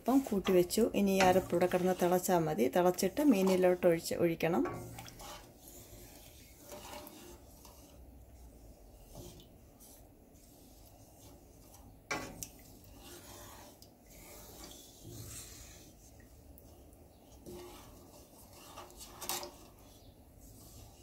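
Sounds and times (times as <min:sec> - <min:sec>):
spatula scraping in a pan: 0:00.0 - 0:21.0.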